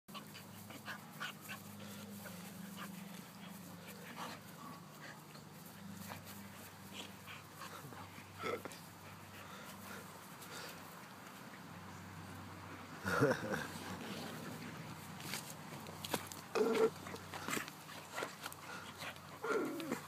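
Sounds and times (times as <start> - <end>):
dogs play-fighting vocal sounds: 16.1 - 20.0.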